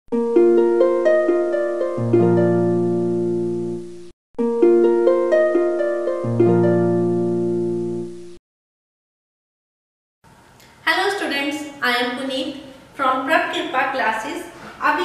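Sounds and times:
plucked intro jingle: 0:00.1 - 0:08.4.

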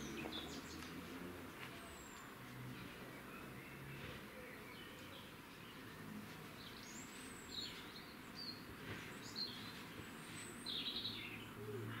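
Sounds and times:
wren singing: 0:00.0 - 0:01.0, 0:06.6 - 0:12.0.

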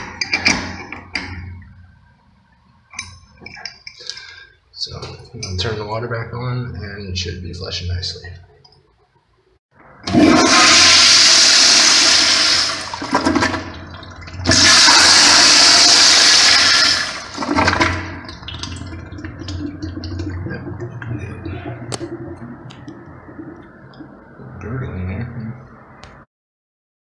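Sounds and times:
toilet flushing: 0:10.0 - 0:24.7
water trickling: 0:17.9 - 0:24.6.

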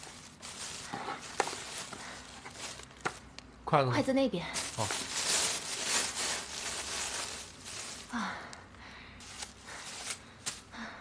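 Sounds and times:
plastic bags rustling: 0:00.0 - 0:03.3, 0:04.6 - 0:08.5, 0:09.2 - 0:10.8.

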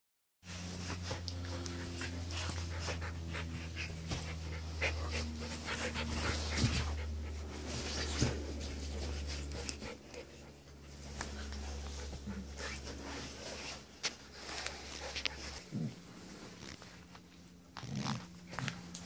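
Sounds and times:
dogs panting and mouthing: 0:00.7 - 0:15.7.

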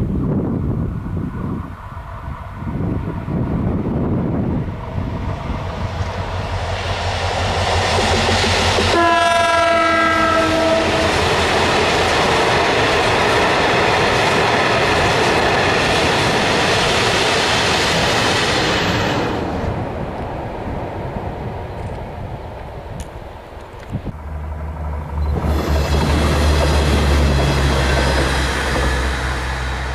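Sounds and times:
train horn blast: 0:08.8 - 0:11.3
freight wagons rumbling past: 0:24.1 - 0:29.9.

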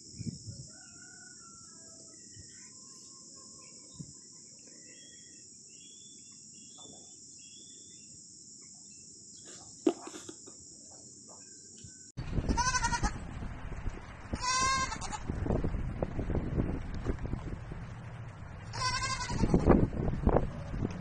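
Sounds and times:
light chirps: 0:02.2 - 0:12.2
baby goat bleating: 0:12.5 - 0:13.2, 0:14.4 - 0:15.2, 0:18.7 - 0:19.7.

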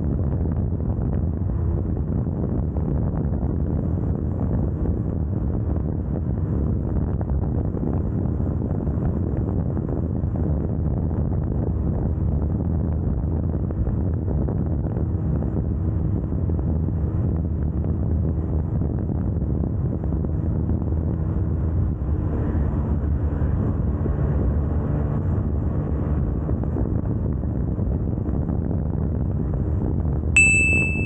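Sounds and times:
wind rushing over microphone: 0:00.0 - 0:31.0
motorcycle engine drone: 0:29.2 - 0:31.0.

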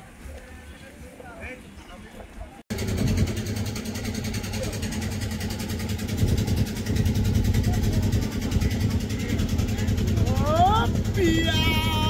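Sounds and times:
boat engine running: 0:02.7 - 0:12.0.

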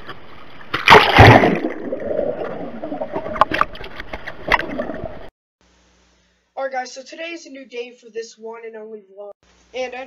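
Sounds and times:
water sloshing and gurgling: 0:00.0 - 0:05.3
water splashing hard: 0:00.8 - 0:03.7.

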